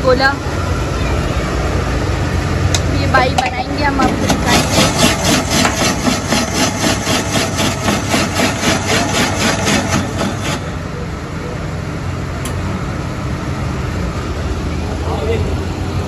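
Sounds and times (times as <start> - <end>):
ice shaving machine scraping: 3.9 - 10.8.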